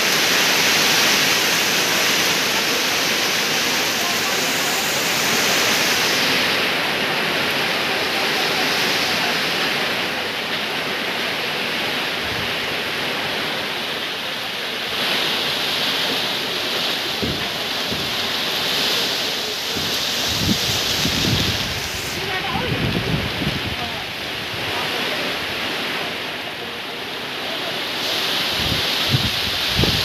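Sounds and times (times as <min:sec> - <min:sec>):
heavy rain pouring: 0:00.0 - 0:30.0
wind buffeting microphone: 0:17.2 - 0:18.3, 0:19.7 - 0:24.8, 0:28.5 - 0:30.0.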